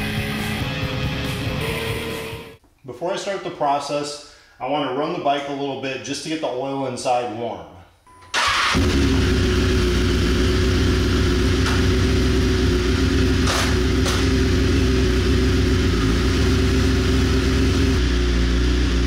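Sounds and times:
motorcycle engine running steadily: 8.8s - 19.0s.

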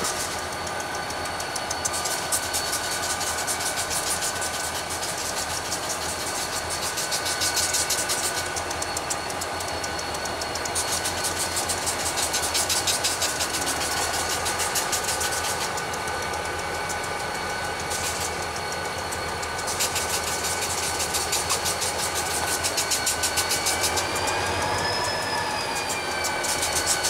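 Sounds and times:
diesel locomotive engines clattering: 0.0s - 27.0s.

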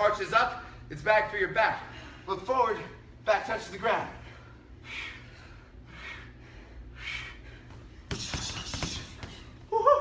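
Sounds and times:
gloves punching heavy bag: 8.1s - 9.5s.

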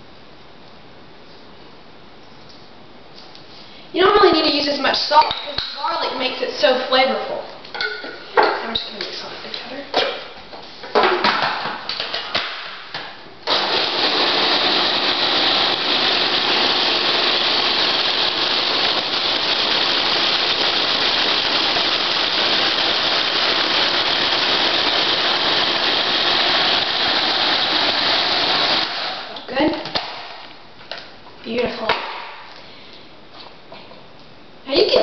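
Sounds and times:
food processor running: 13.5s - 29.4s.

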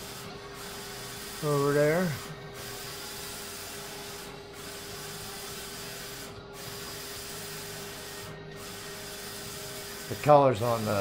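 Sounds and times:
printer carriage whirring: 0.0s - 11.0s.

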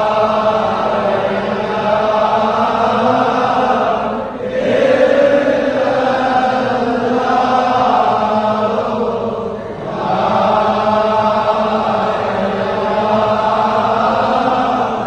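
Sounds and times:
many voices chanting in unison: 0.0s - 15.0s.

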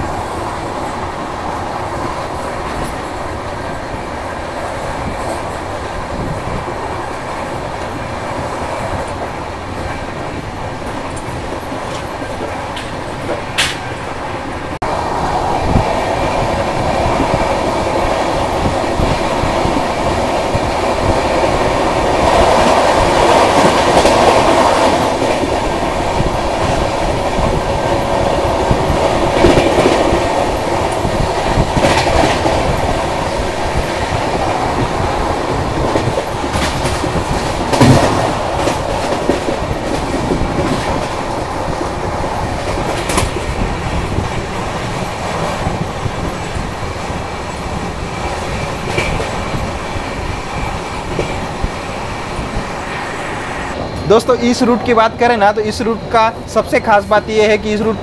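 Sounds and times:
train wheels rumbling on rails: 0.0s - 58.0s
clacks over rail joints: 9.0s - 14.0s, 35.6s - 41.6s, 48.2s - 49.6s.

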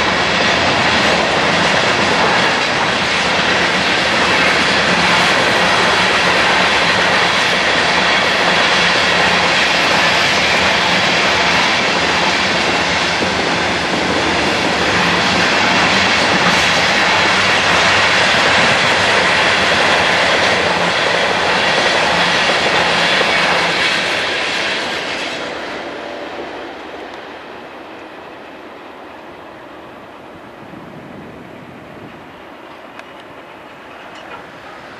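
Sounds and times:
train cars rolling past: 0.0s - 34.9s.

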